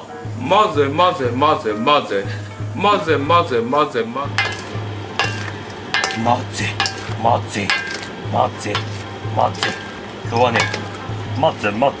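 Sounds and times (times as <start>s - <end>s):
man's voice: 0.4s - 4.4s, 6.1s - 12.0s
steady low hum: 4.3s - 11.6s
salad tossed in metal bowl: 4.4s - 11.1s.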